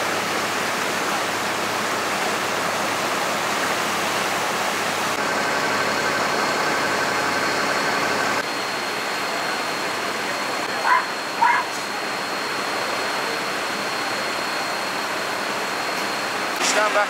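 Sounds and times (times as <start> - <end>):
faint high whine: 4.2 - 17.0.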